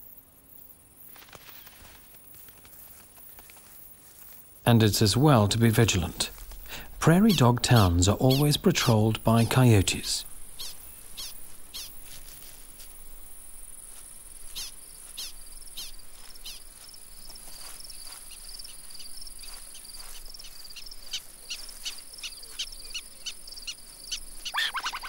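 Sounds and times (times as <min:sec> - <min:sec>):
sharp chirping alarm calls: 0:04.9 - 0:12.1, 0:14.5 - 0:16.8, 0:18.0 - 0:25.0
high insect buzz: 0:06.3 - 0:25.0.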